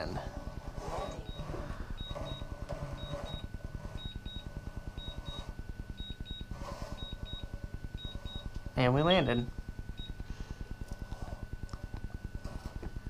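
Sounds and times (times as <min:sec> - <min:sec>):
low pulsing hum: 0:00.0 - 0:13.0
electronic warning beeps in pairs: 0:00.4 - 0:10.5.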